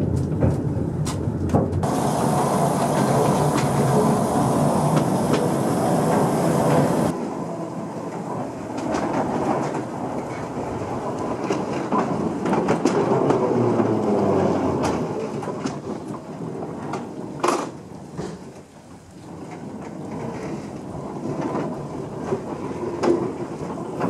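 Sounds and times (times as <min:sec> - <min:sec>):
train wheels clicking over rail joints: 0:00.0 - 0:07.3, 0:08.0 - 0:24.0
diesel locomotive running: 0:00.0 - 0:16.3.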